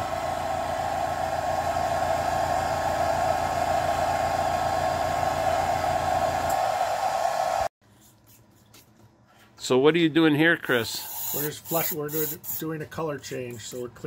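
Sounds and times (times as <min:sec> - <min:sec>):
hair dryer blowing: 0:00.0 - 0:07.7.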